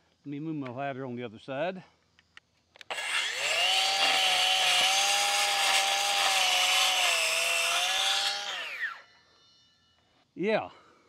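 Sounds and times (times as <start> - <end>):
circular saw cutting wood: 2.9 - 9.1.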